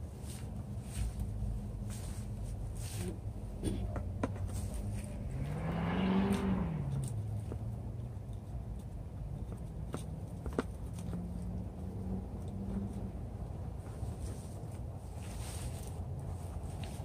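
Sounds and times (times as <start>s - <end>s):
steady low hum: 0.0s - 5.5s
vehicle passing by: 4.5s - 8.3s, 10.9s - 17.0s.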